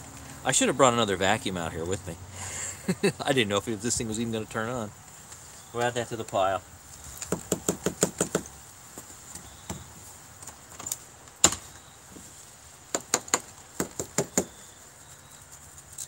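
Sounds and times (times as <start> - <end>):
plastic hose knocking on wooden deck: 7.3 - 8.5.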